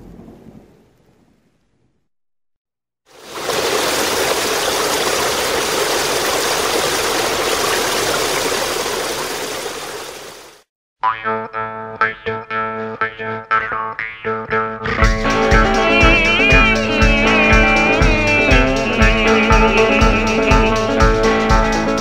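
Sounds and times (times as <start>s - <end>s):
creek water rushing over rocks: 3.1s - 10.6s
plucked guitar music: 11.0s - 22.0s.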